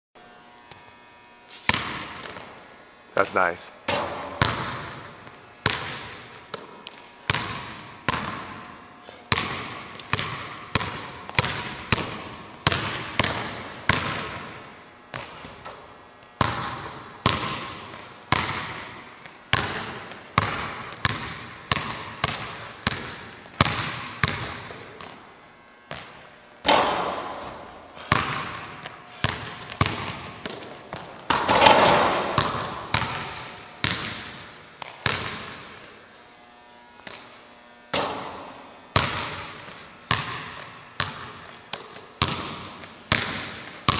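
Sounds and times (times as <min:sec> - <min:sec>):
basketball bouncing on hardwood floor: 0:01.7 - 0:02.5, 0:03.9 - 0:08.7, 0:09.3 - 0:25.2, 0:25.9 - 0:35.7, 0:37.9 - 0:43.9
sneaker squeaks: 0:06.3 - 0:07.1, 0:10.9 - 0:13.8, 0:20.7 - 0:23.8, 0:26.8 - 0:31.1.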